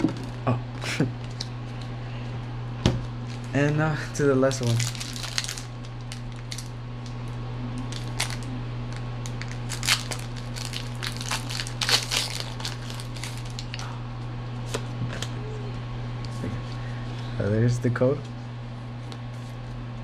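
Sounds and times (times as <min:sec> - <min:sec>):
foil wrapper tearing and crinkling: 0:04.6 - 0:06.7, 0:07.9 - 0:08.5, 0:09.2 - 0:13.8.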